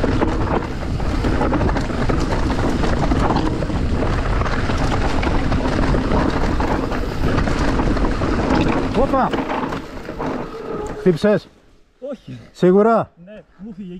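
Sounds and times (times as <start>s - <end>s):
wind rushing over microphone: 0.0s - 11.1s
bike knocks and rattles: 0.0s - 11.2s
tyres on loose rock: 0.0s - 11.4s.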